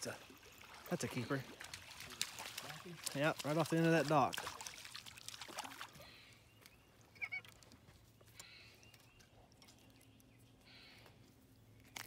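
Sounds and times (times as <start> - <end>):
distant bird call: 8.2 - 9.3, 10.6 - 11.2.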